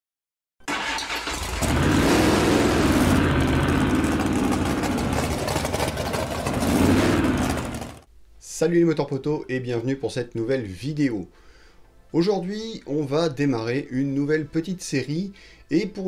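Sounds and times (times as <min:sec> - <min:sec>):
car engine starting and revving: 0:00.7 - 0:08.1.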